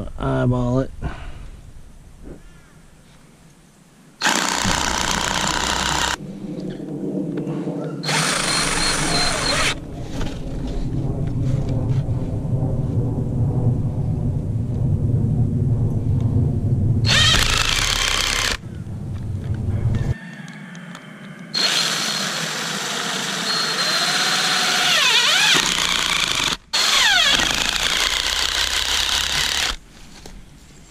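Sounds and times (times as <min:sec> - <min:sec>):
cordless drill driving screws: 0:04.2 - 0:06.2, 0:08.0 - 0:09.8, 0:17.1 - 0:18.6, 0:21.6 - 0:29.8.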